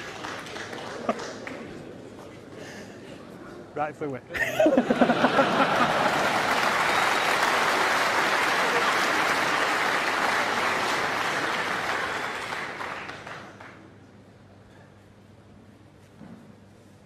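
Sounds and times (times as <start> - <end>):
crowd applauding: 0.0 - 2.0, 4.8 - 14.0.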